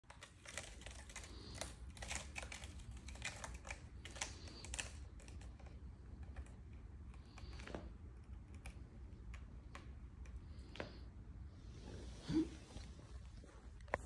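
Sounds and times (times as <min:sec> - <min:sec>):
kitten claws scratching rope: 0:00.0 - 0:10.8.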